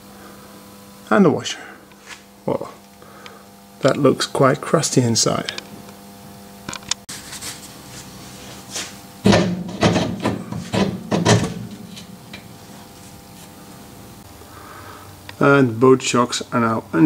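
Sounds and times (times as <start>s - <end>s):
metal scraping and knocking: 9.2s - 12.6s.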